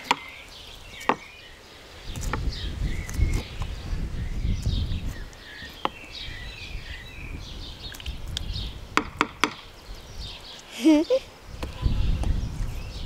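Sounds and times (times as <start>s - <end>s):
small birds chirping: 0.0s - 13.0s
wind rumble on microphone: 2.0s - 10.5s, 11.2s - 13.0s.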